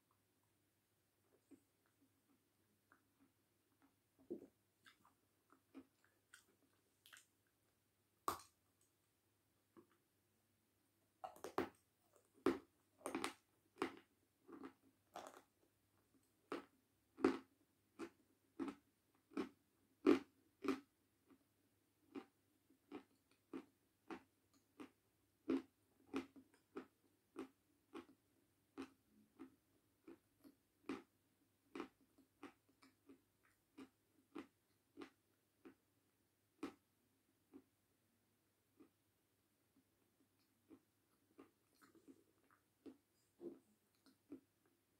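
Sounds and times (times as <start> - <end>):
chalk crunching while chewed: 11.2 - 15.5.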